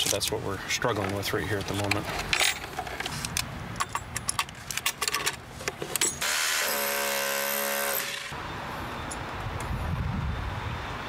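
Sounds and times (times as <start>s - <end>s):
hands working wires: 0.0s - 7.1s
rotary hammer drill boring brick: 6.2s - 8.3s.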